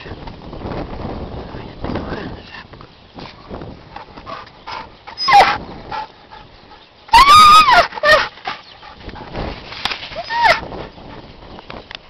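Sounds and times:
dog whining and yelping: 5.1s - 6.0s, 7.1s - 8.8s, 10.2s - 10.6s.

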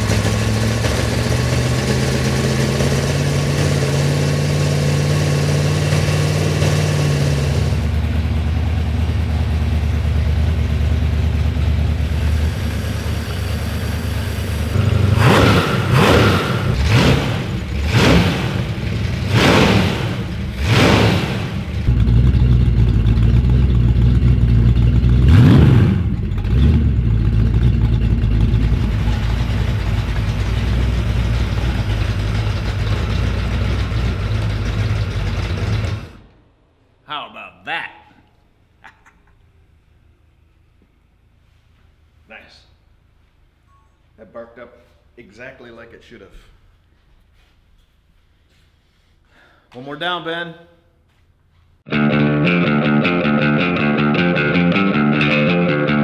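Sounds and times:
engine revving: 0.0s - 36.3s
engine idling: 0.0s - 36.4s.

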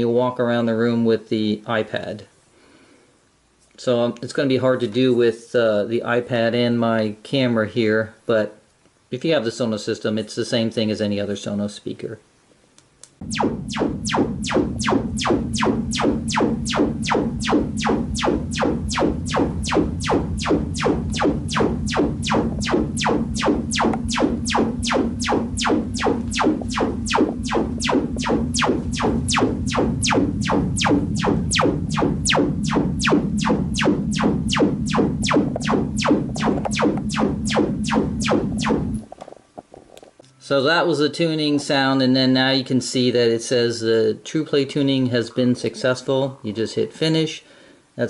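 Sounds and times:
sharp evenly spaced clicks: 13.0s - 39.1s
steady low hum: 13.2s - 40.7s.

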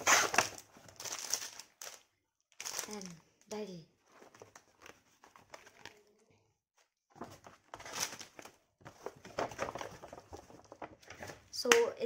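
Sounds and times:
paper packaging rustling: 0.0s - 3.2s, 4.0s - 6.2s, 7.1s - 11.6s
notebook pages turning: 4.1s - 6.1s, 7.1s - 11.5s.

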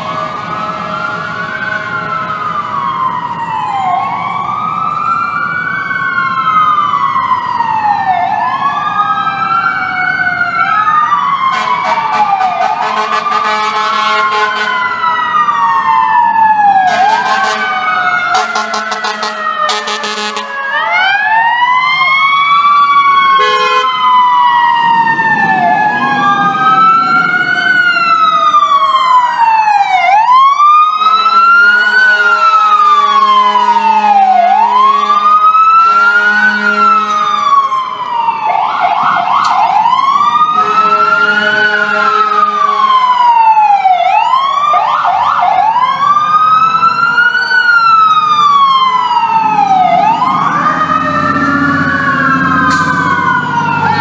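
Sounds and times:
fire truck siren wailing: 0.0s - 54.0s
air horn: 11.5s - 14.8s, 16.9s - 17.8s, 18.4s - 20.5s, 23.4s - 23.9s, 31.0s - 37.6s, 40.6s - 43.0s
second siren tone sliding: 48.7s - 54.0s.

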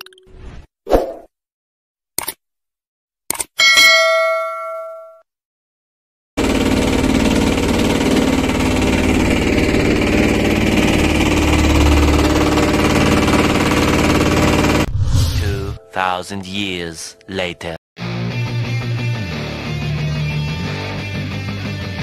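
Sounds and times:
short chime: 3.6s - 5.2s
boat engine running: 6.4s - 14.9s.

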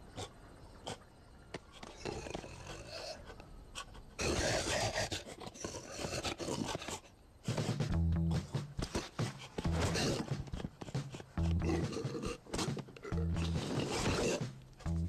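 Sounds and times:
scuffling and rubbing: 7.5s - 15.0s
low animal growl: 9.6s - 12.4s, 13.0s - 14.4s.

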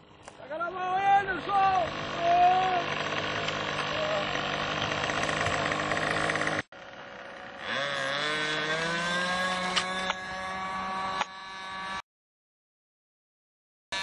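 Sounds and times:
model airplane engine running: 1.4s - 12.0s
model airplane engine throttling up: 1.5s - 12.0s.

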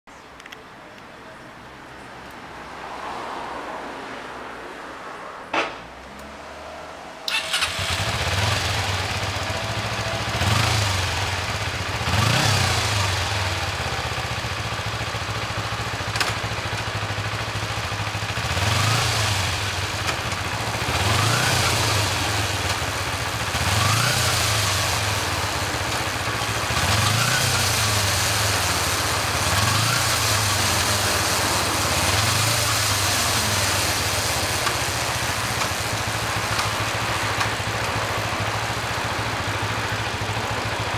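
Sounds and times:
motorcycle engine revving: 7.3s - 40.9s.

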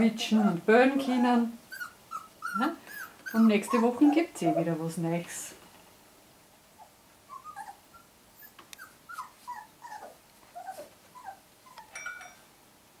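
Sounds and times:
puppies whimpering and squeaking: 0.2s - 4.8s, 6.8s - 12.2s.

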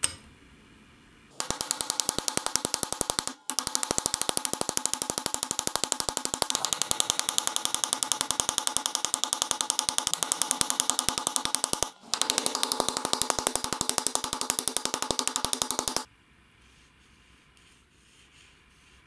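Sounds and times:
hammer tapping on metal rivet: 1.4s - 16.1s.

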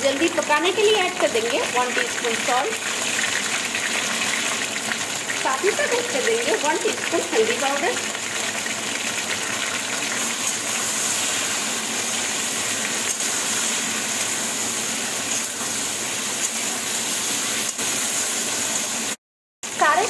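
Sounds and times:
vegetables frying in oil: 0.0s - 20.0s.

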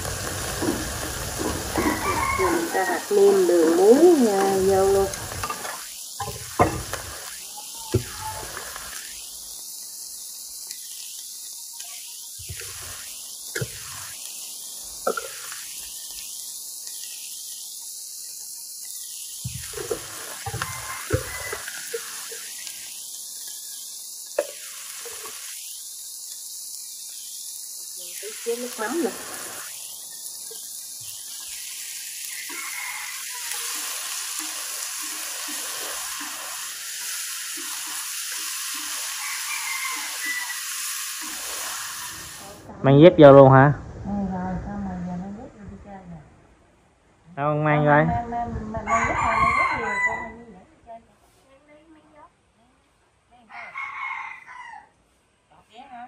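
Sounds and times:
shrimp sizzling in a wok: 0.0s - 43.4s, 47.4s - 56.0s
chopsticks stirring in a wok: 0.3s - 7.4s, 18.3s - 42.2s.

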